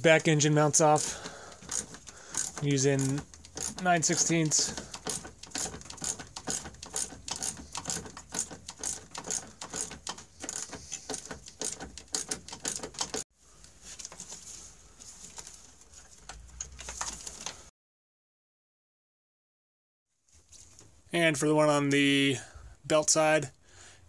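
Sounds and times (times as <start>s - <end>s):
socket ratchet clicking: 1.0s - 13.2s.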